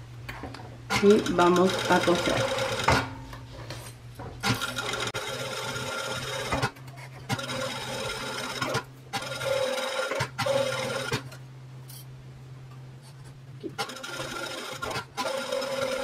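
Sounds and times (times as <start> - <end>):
steady low hum: 0.0 - 15.9
sewing machine stitching: 0.9 - 3.1, 4.4 - 11.4, 13.7 - 16.0.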